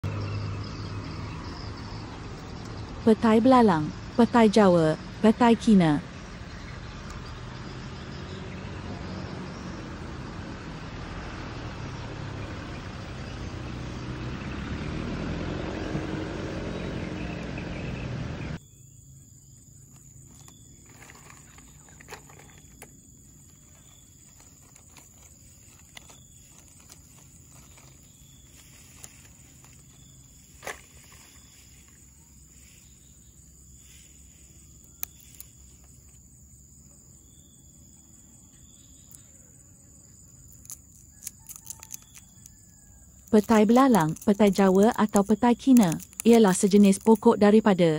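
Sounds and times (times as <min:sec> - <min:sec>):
seed pods snapping: 0:23.5 - 0:31.4, 0:34.7 - 0:35.9, 0:40.4 - 0:47.4.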